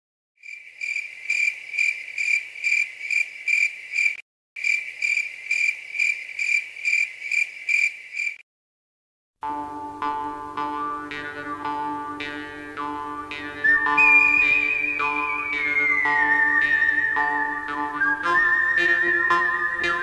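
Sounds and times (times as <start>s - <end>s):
cricket chirping: 0.4s - 8.4s.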